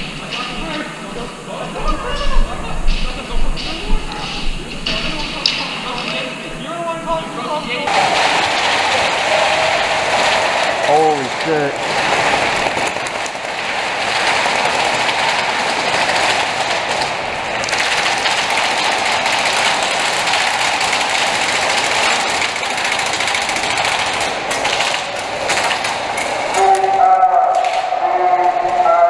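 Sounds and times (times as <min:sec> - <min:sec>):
pellets rattling against walls: 0:00.0 - 0:28.8
airsoft guns firing full auto: 0:07.9 - 0:26.7.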